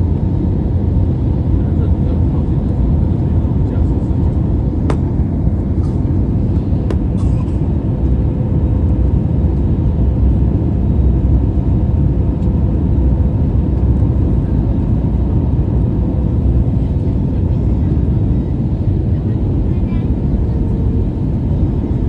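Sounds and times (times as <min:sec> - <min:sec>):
jet engine rumble in cabin: 0:00.0 - 0:22.0.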